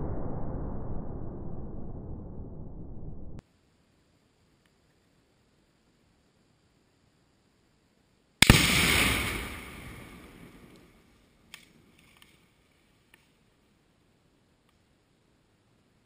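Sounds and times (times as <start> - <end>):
loud explosion blast: 8.4 - 10.6.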